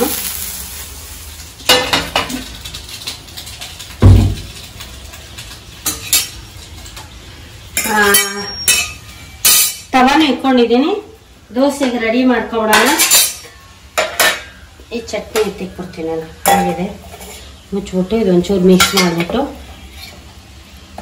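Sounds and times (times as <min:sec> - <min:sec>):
sizzling: 0:00.0 - 0:21.0
pan thudding on stove: 0:04.0 - 0:04.5
steel utensils clinking: 0:07.8 - 0:10.1, 0:12.7 - 0:14.6, 0:16.4 - 0:17.5, 0:18.7 - 0:19.4
steel vessels ringing: 0:07.8 - 0:10.1.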